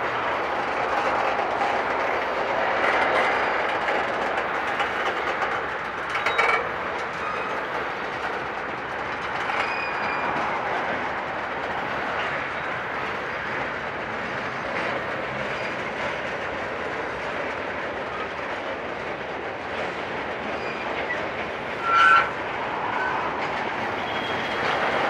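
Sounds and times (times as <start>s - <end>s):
freight cars rumbling on rails: 0.0s - 25.0s.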